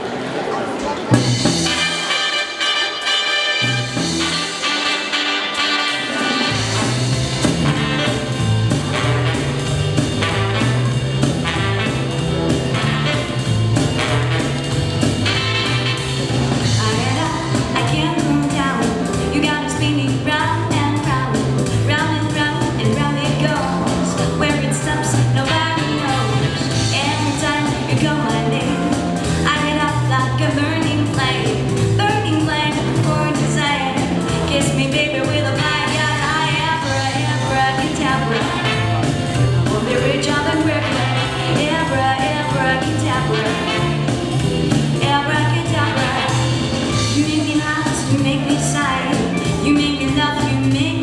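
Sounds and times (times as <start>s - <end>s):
upbeat song with singing: 39.6s - 43.9s.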